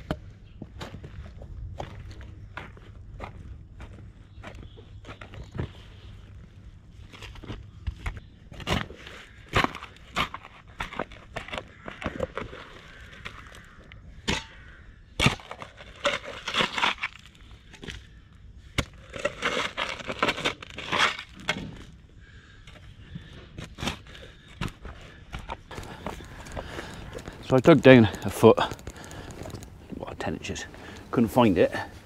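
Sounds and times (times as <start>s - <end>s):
spade scraping through soil: 15.2s - 17.4s, 18.8s - 21.9s.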